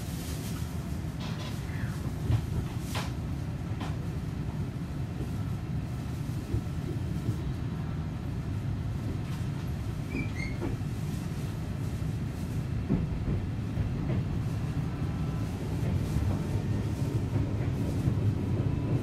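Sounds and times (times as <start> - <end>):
train wheels rumbling: 0.0 - 19.0.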